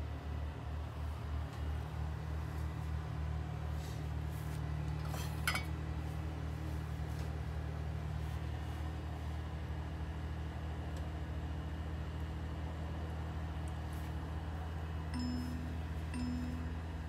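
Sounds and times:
espresso machine humming: 14.2 - 17.0
glass clink: 15.2 - 16.8.

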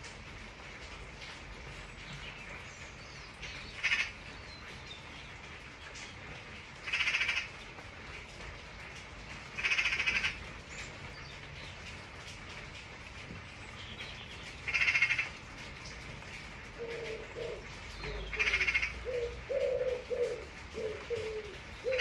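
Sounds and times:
rain hissing: 0.0 - 22.0
crow cawing: 6.9 - 7.5, 9.6 - 10.4, 14.7 - 15.3, 18.3 - 19.8.

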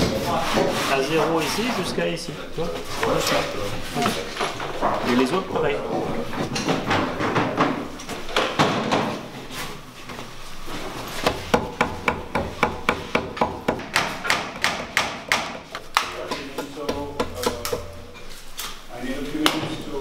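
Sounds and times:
mallet striking chisel: 11.2 - 17.9.

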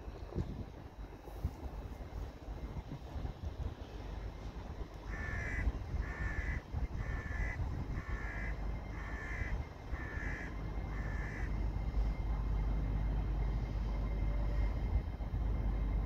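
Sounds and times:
train rumbling: 0.0 - 16.0
crow cawing: 5.1 - 11.5.

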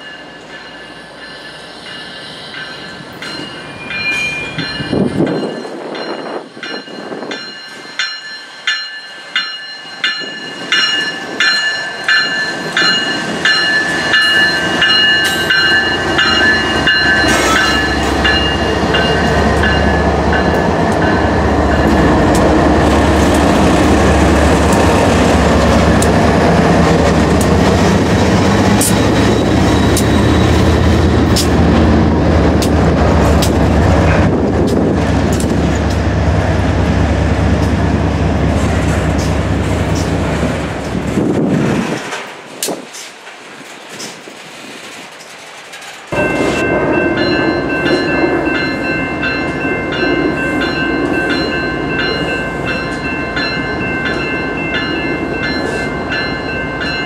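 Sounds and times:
bell ringing: 0.0 - 22.0, 46.2 - 57.0
train wheels clattering on rail: 2.6 - 57.0
diesel locomotive engine rumble: 9.1 - 57.0.

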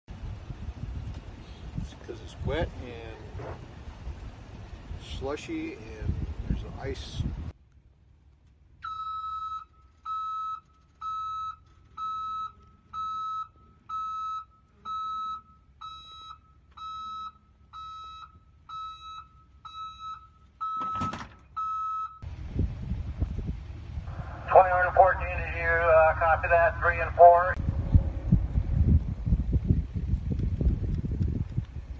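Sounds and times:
vehicle warning beeper: 8.8 - 22.3
loud rush of noise: 24.0 - 29.6.

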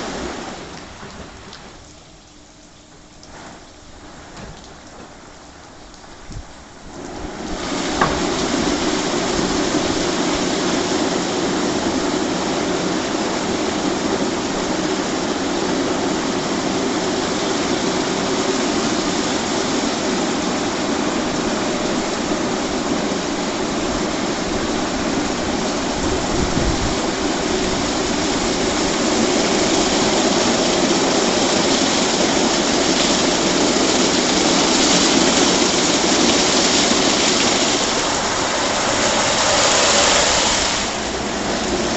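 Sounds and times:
water spraying: 0.0 - 41.9
car wash brushes spinning: 27.6 - 41.9.

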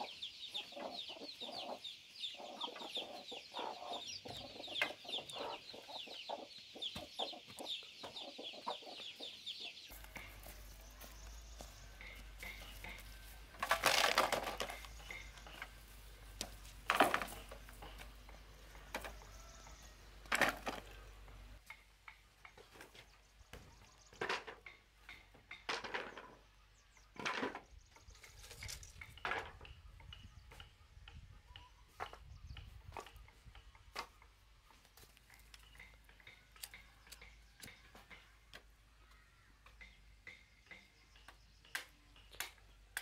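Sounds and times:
wooden blocks knocking and clattering: 11.9 - 19.3, 20.2 - 21.4, 22.0 - 26.4, 27.2 - 27.6, 28.3 - 30.2.

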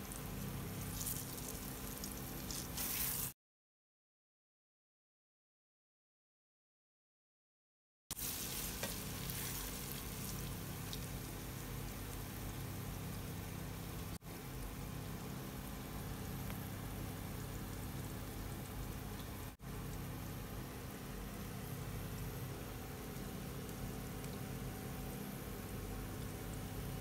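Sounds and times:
omelet sizzling in oil: 0.0 - 3.4, 8.1 - 19.6.

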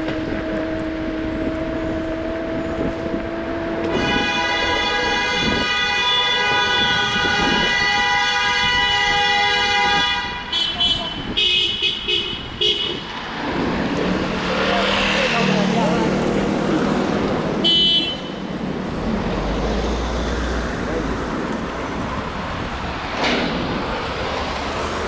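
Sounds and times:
vehicle horn blast: 3.8 - 13.0, 17.6 - 18.5.

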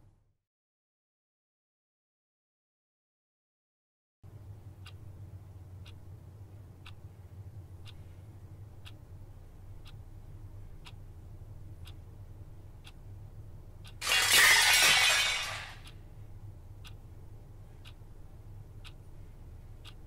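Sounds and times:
clock ticking: 4.3 - 15.2, 15.8 - 20.0
glass shattering: 14.0 - 15.8.

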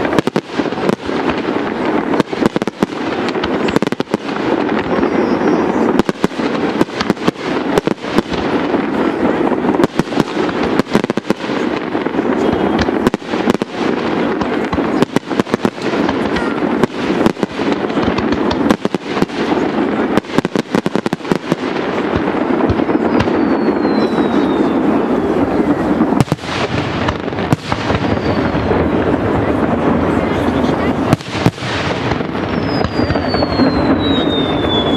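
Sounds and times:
faint falling whistle: 32.6 - 34.9.

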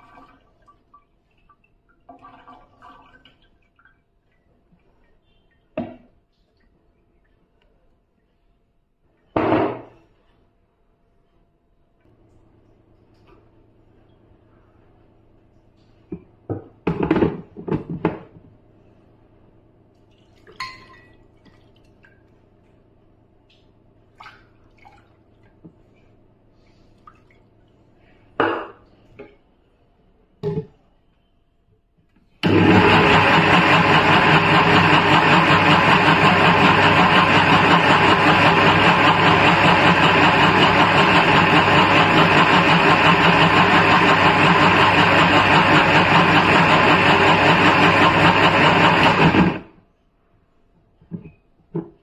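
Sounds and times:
mixer grinder motor running: 32.4 - 49.7.

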